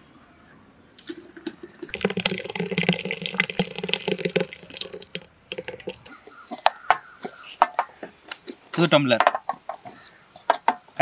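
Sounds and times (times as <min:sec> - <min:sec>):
liquid pouring and splashing: 0:01.0 - 0:06.2.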